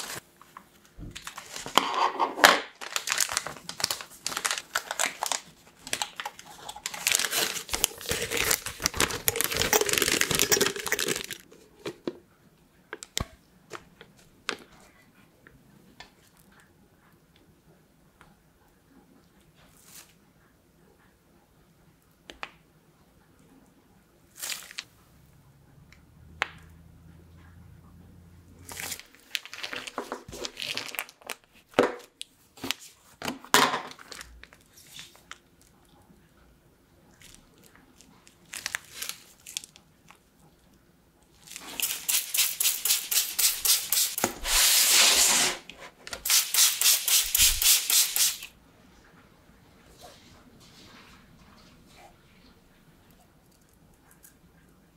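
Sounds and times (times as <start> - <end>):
plastic piping bag crinkling: 2.6 - 11.5, 24.3 - 24.9, 28.6 - 33.0, 37.1 - 40.3, 41.4 - 44.5.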